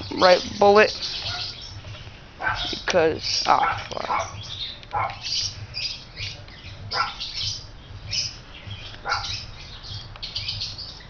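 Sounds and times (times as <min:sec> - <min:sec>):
birds chirping and calling: 0:00.0 - 0:11.0
sharp falling bird calls: 0:00.0 - 0:11.0.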